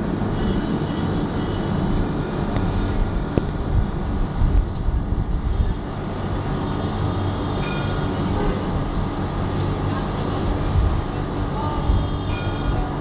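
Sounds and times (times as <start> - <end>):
street noise: 0.0 - 13.0
tram rumbling: 0.0 - 13.0.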